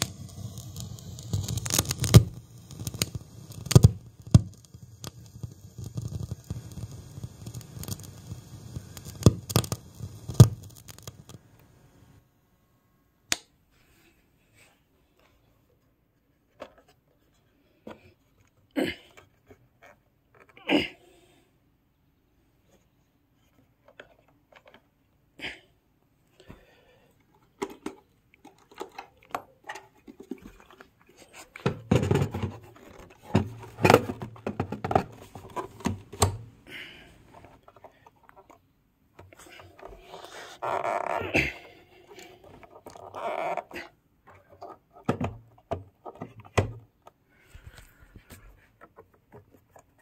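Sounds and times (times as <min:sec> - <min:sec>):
plastic clicks and knocks: 0:31.6 - 0:36.4, 0:44.2 - 0:47.2.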